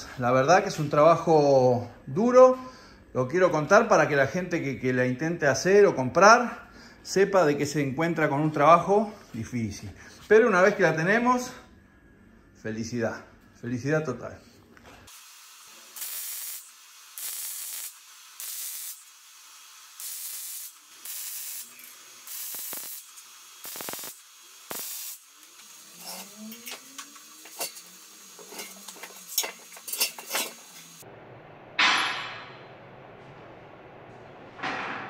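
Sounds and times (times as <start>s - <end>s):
aerosol spray hissing: 15.1s - 26.5s.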